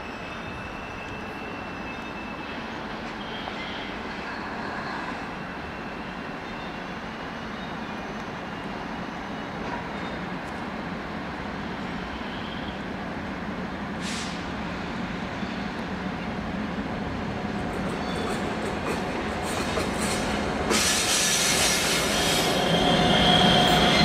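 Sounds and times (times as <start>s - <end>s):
train rumbling: 9.6s - 24.0s
air hiss: 14.0s - 14.5s, 20.7s - 22.7s.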